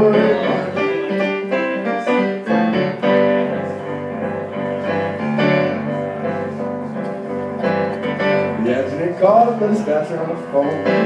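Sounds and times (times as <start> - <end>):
electric keyboard chords and bass: 0.0 - 11.0.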